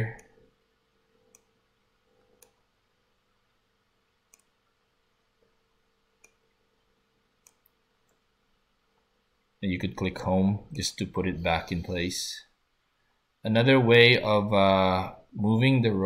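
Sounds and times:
faint computer mouse clicks: 4.3s - 4.5s, 6.2s - 6.4s, 7.4s - 8.2s.

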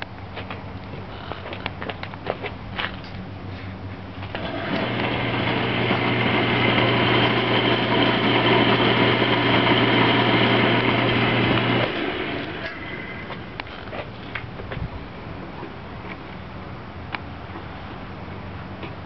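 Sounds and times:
wood lathe motor humming: 4.4s - 13.8s
spinning spindle whir: 4.4s - 13.9s.

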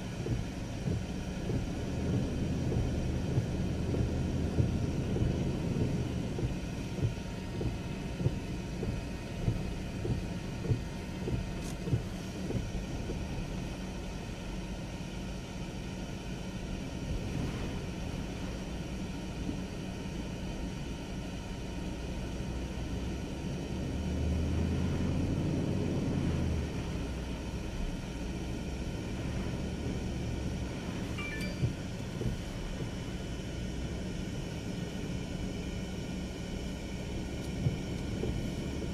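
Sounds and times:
wind and rain buffeting car: 0.0s - 38.9s.

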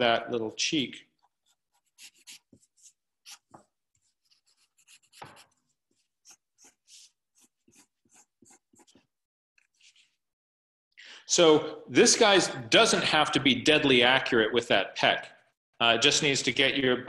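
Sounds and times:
pencil scratching on paper: 1.1s - 10.2s.

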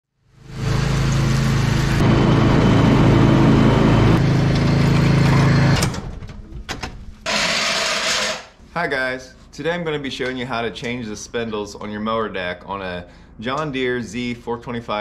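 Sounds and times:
mower engine running: 0.4s - 5.8s.

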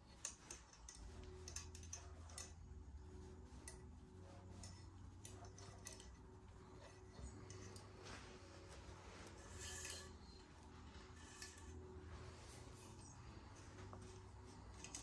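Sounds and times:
small clicks of handled tools: 0.0s - 2.6s, 3.6s - 8.0s, 11.2s - 11.8s, 13.8s - 15.0s
low steady hum: 0.0s - 15.0s.

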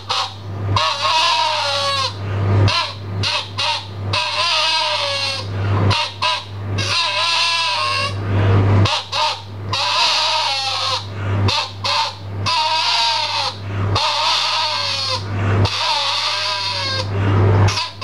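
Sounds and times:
balloon rubber squealing: 0.0s - 2.1s, 2.7s - 8.2s, 8.9s - 11.0s, 11.6s - 17.1s, 17.7s - 18.0s.

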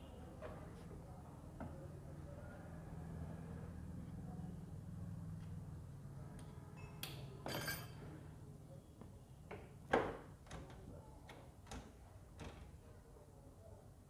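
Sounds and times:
ringing metallic clink: 7.5s - 8.0s.

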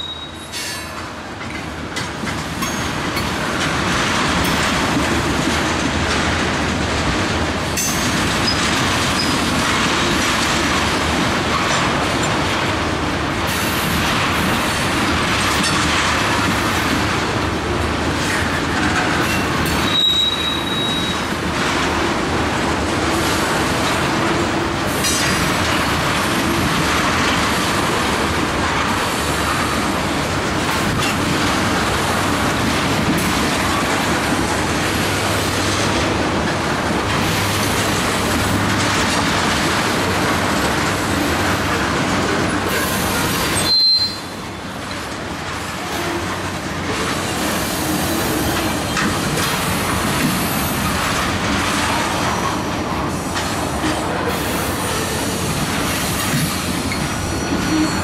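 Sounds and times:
high wheel squeals: 0.0s - 0.8s, 19.8s - 21.3s, 42.8s - 44.4s, 56.9s - 58.0s
train wheels rolling on rail: 0.0s - 58.0s
clicks at rail joints: 13.5s - 17.5s, 44.8s - 54.1s.

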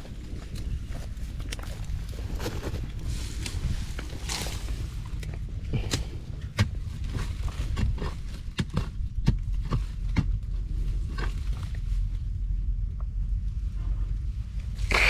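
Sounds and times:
steady low rumble: 0.0s - 15.0s
sharp knocks and thuds: 5.3s - 11.8s.

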